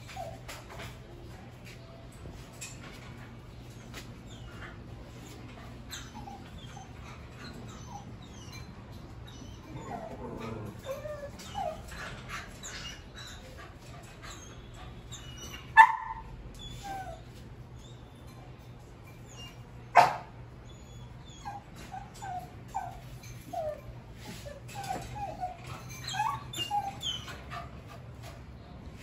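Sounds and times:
dogs whining and whimpering: 0:00.0 - 0:01.2, 0:03.5 - 0:28.4
dog yelping: 0:15.1 - 0:17.3, 0:19.3 - 0:27.5.

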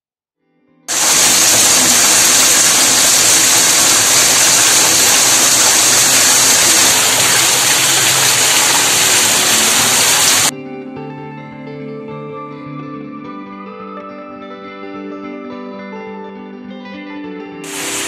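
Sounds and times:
heavy rain: 0:00.9 - 0:10.5, 0:17.6 - 0:18.0
water gushing down steps: 0:00.9 - 0:10.5, 0:17.7 - 0:18.0
water pouring from drainpipe: 0:00.9 - 0:10.5, 0:17.7 - 0:18.0.

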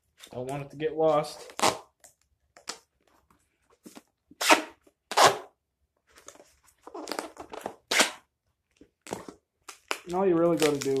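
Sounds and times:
duct tape tearing: 0:01.4 - 0:01.9, 0:04.4 - 0:05.5, 0:06.9 - 0:08.2.

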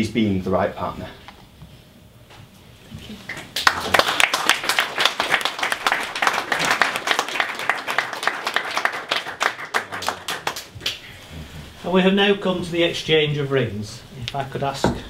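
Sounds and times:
crowd applauding: 0:03.3 - 0:11.0.

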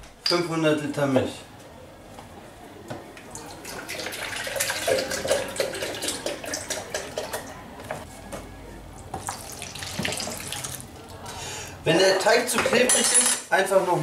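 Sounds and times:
milk pouring and glugging: 0:03.3 - 0:07.5, 0:09.1 - 0:10.9.

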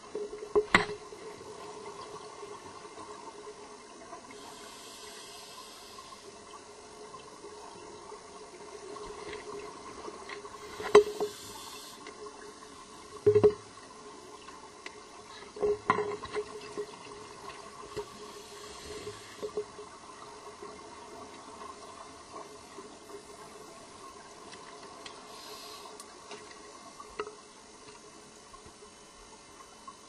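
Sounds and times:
faint hum: 0:00.0 - 0:30.0.

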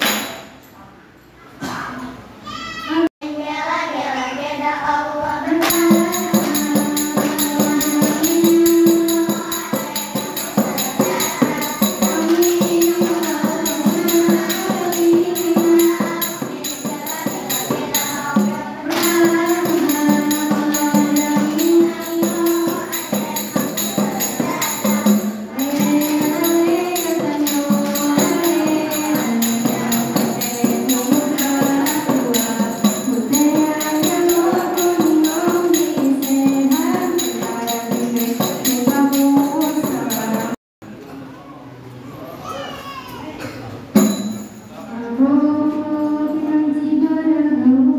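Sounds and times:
girls singing in unison: 0:03.2 - 0:40.6
rhythmic hand-clapping: 0:05.6 - 0:40.6.

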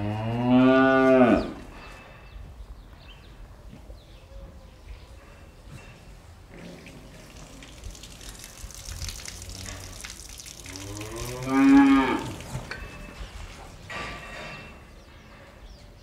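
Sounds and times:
cow mooing: 0:00.0 - 0:01.6, 0:10.6 - 0:12.5
low barn background: 0:00.0 - 0:16.0.

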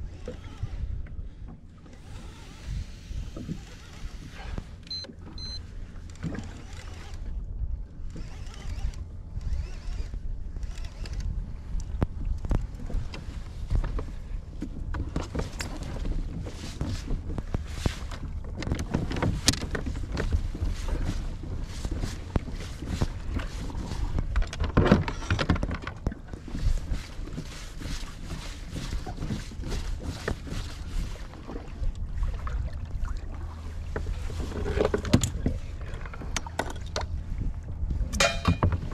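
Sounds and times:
low wind and water rumble: 0:00.0 - 0:38.9
fishing reel cranking: 0:00.1 - 0:00.9, 0:01.9 - 0:04.4, 0:06.4 - 0:07.3, 0:08.1 - 0:11.3
short high beeps: 0:04.9 - 0:05.6
fishing gear knocks and clicks: 0:10.7 - 0:30.6, 0:34.0 - 0:37.2, 0:38.1 - 0:38.9.

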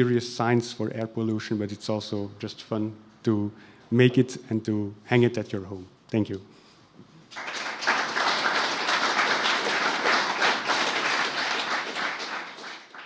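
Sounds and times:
audience applauding: 0:07.3 - 0:13.0.

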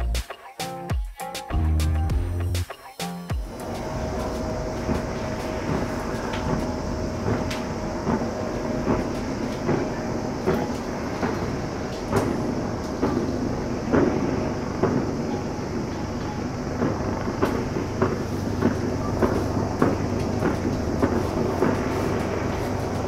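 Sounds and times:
distant fireworks popping: 0:03.4 - 0:23.0.

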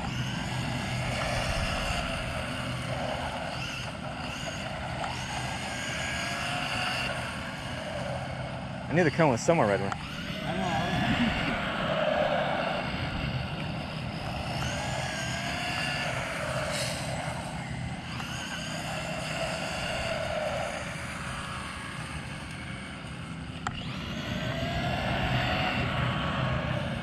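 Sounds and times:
steady low rumble: 0:00.0 - 0:05.0, 0:07.3 - 0:18.1
electric rc car motors whining: 0:00.0 - 0:27.0.

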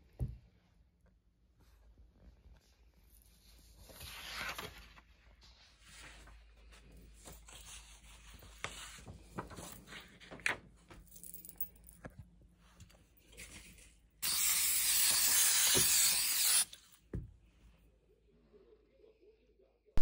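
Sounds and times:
paper rustling on cardboard: 0:03.5 - 0:10.6.

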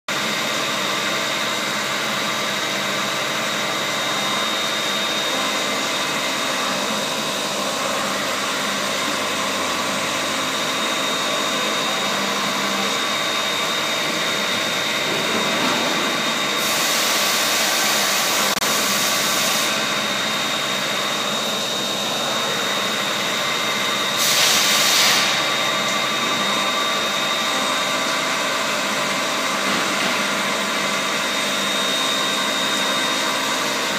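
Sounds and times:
milling machine whining: 0:00.1 - 0:33.9
coolant hissing: 0:16.2 - 0:31.7.

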